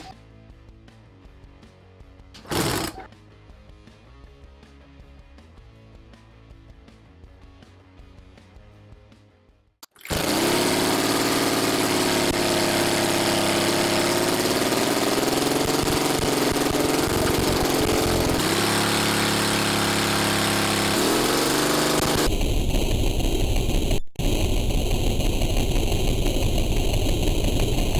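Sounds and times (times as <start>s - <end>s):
homemade engine running: 2.4s - 3.1s, 10.0s - 22.3s.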